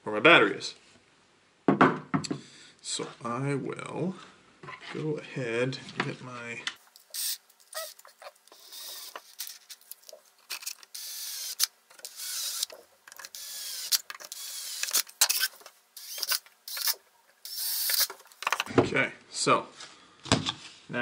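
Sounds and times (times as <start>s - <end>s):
cordless drill whine: 7.1s - 9.6s, 10.5s - 18.2s.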